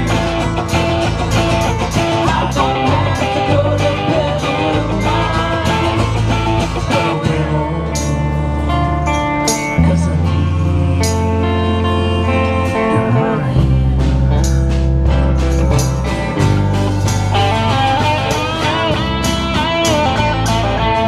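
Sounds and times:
bass line: 0.0s - 21.0s
electric guitar: 0.0s - 21.0s
strummed acoustic guitar: 0.0s - 21.0s
person singing: 1.4s - 14.7s.

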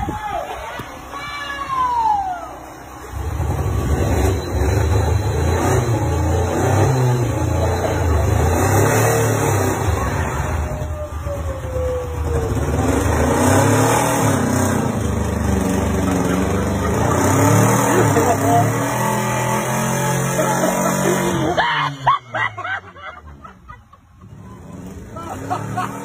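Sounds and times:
car engine revving hard: 3.1s - 10.7s, 12.4s - 22.2s, 24.5s - 26.0s.

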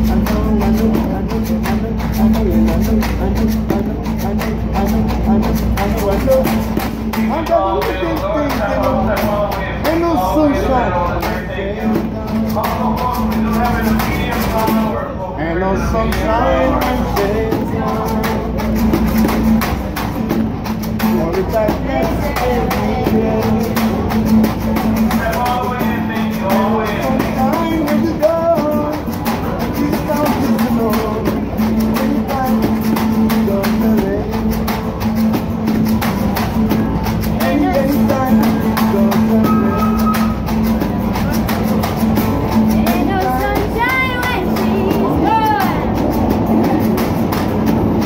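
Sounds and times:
acoustic guitar strumming: 0.0s - 48.0s
handheld shakers: 16.7s - 48.0s.

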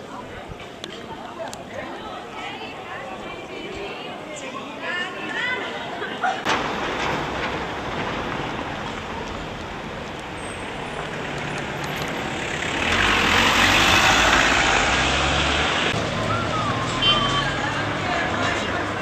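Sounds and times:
street noise: 0.0s - 19.0s
vehicle passing close by: 7.2s - 19.0s.

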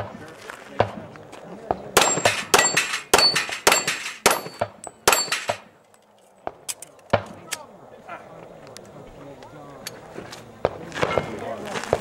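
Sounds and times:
pistol shots: 1.7s - 5.7s
steel targets clanging: 2.0s - 5.8s.

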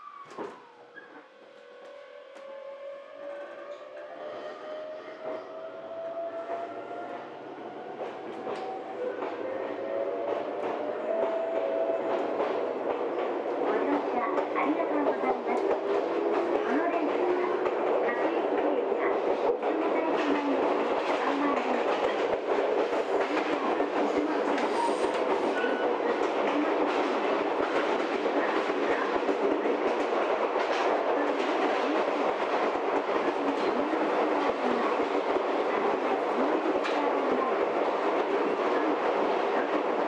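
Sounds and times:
rail joint clicks: 0.3s - 2.5s, 7.8s - 37.4s
train wheels rumbling on rail: 0.3s - 40.0s.

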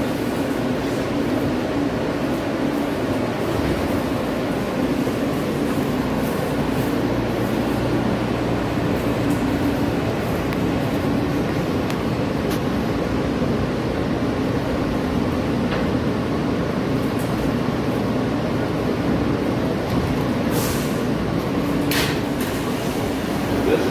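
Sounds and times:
subway car rumble: 0.0s - 23.9s.

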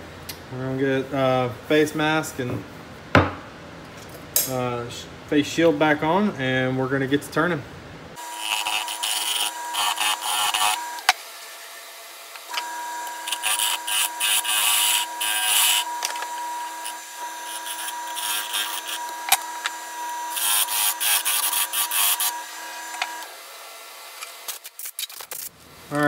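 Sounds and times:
tool scraping spinning wood: 8.2s - 11.2s, 12.4s - 23.3s
wood lathe whine: 8.2s - 24.5s.

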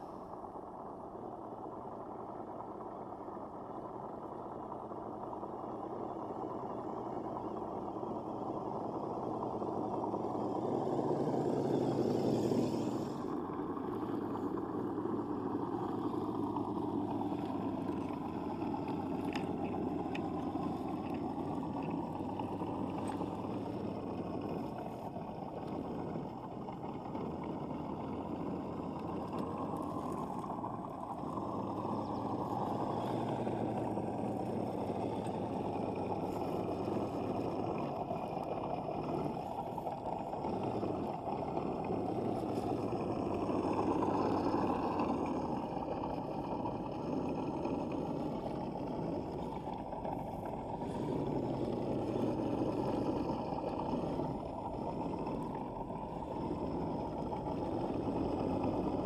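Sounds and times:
faint clicks: 12.2s - 59.0s.

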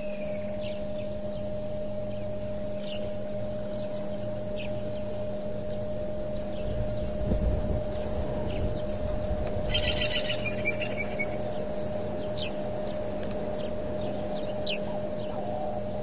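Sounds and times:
bird trill: 0.0s - 16.0s
electrical hum: 0.0s - 16.0s
bird whistles falling in pitch: 9.7s - 10.8s.

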